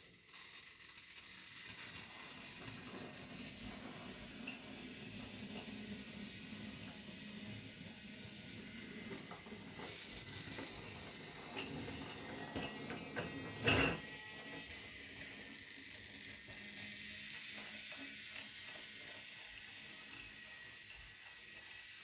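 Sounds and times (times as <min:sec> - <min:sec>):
toy train mechanism clicking: 0:00.1 - 0:03.6, 0:07.9 - 0:22.0.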